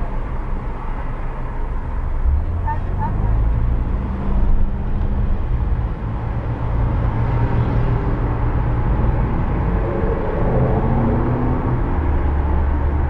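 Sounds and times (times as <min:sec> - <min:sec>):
car engine and tyres rumbling: 0:00.0 - 0:13.0
surrounding traffic: 0:00.0 - 0:13.0.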